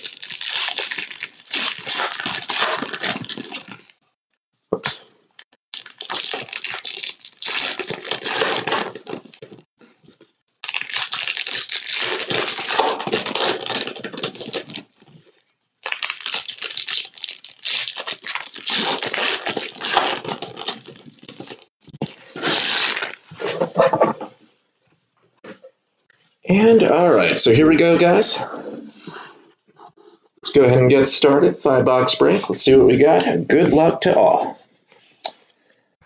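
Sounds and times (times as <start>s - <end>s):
foil wrappers crinkling and tearing: 0.0s - 4.0s, 5.7s - 9.7s, 10.6s - 23.4s.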